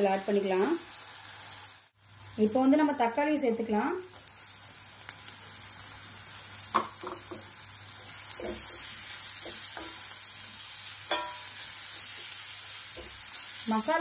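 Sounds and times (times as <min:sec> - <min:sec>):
vegetables sizzling in oil: 0:00.0 - 0:14.0.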